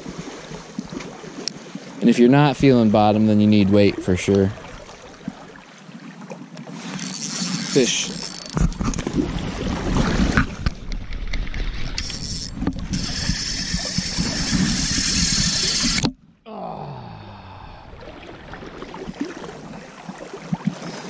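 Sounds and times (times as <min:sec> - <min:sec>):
moving water: 0:00.0 - 0:21.0
clothing and gear rubbing: 0:07.0 - 0:08.6.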